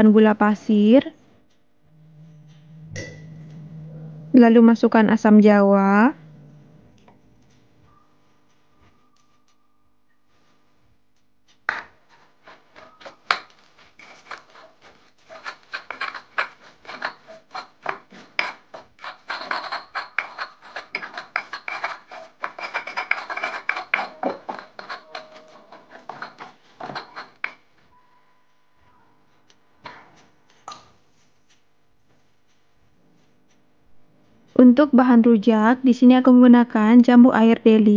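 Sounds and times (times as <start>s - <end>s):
stone pestle grinding in mortar: 11.7s - 27.8s.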